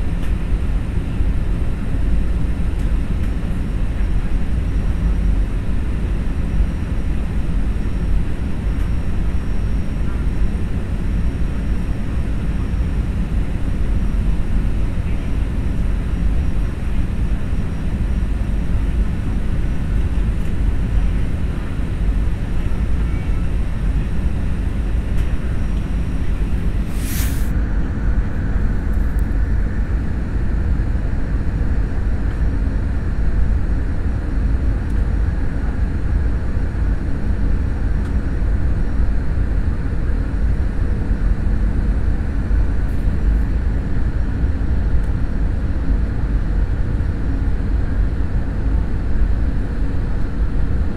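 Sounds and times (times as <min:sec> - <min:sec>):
jet engines rumbling in cabin: 0:00.0 - 0:50.9
high hiss: 0:26.9 - 0:27.5.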